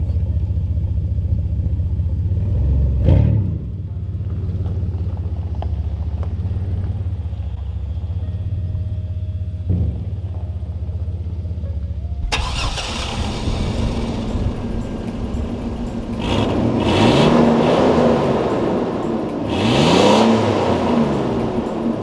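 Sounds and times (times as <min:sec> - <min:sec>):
car engine running: 0:12.2 - 0:22.0
engine revving: 0:12.2 - 0:22.0.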